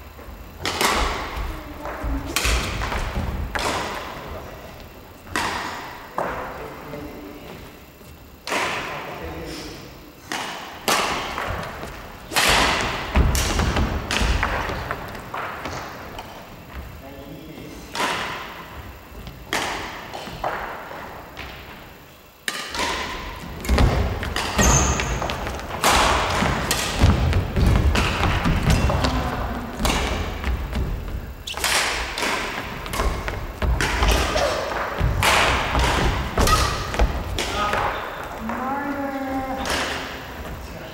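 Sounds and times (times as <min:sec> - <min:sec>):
racket hitting shuttlecock: 0:00.6 - 0:01.5, 0:02.2 - 0:04.2, 0:05.3 - 0:06.4, 0:10.3 - 0:16.4, 0:17.9 - 0:21.7, 0:22.4 - 0:38.6.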